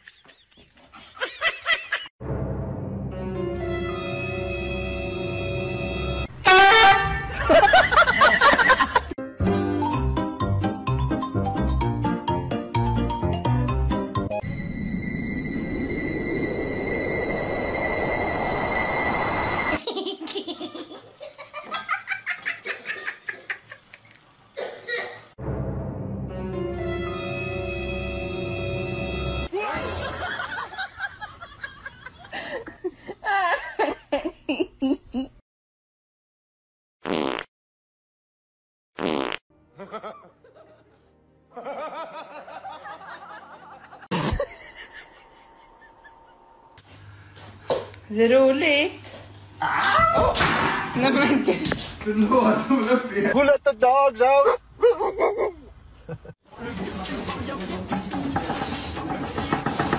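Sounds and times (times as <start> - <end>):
background music: 2.2 - 7.7, 8.7 - 14.5, 25.4 - 29.5, 56.6 - 59.9
people laughing: 7.3 - 9.2, 29.5 - 34.1, 39.8 - 46.6, 54.5 - 57.4
high-pitched laughter: 44.1 - 46.6, 54.8 - 56.3.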